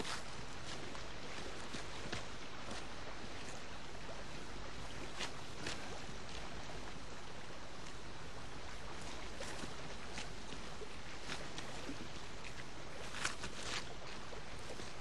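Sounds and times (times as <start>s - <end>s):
river rushing: 0.0s - 15.0s.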